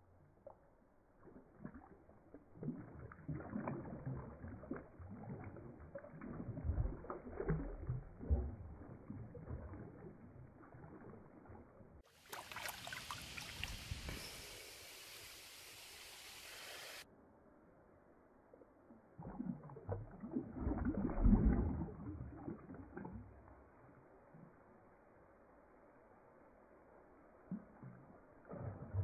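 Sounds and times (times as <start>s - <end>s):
fish splashing in water: 1.2s - 13.9s
wash of water: 1.2s - 17.0s.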